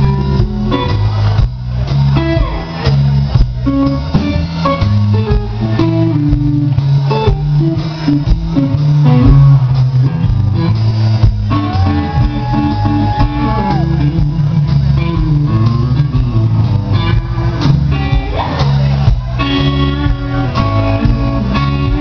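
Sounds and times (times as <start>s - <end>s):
bass guitar: 0.0s - 22.0s
driving drum beat: 0.0s - 22.0s
electric guitar riffing: 0.0s - 22.0s.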